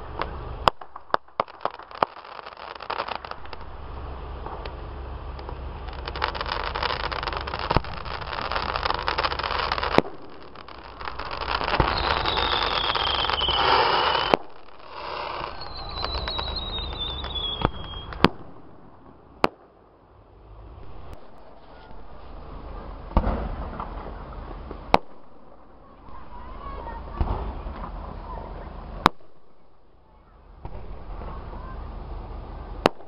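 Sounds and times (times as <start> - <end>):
falling firework whistles: 0.0 - 19.2
fireworks shells exploding: 0.0 - 29.9, 32.8 - 33.0
fireworks crackling: 0.0 - 33.0.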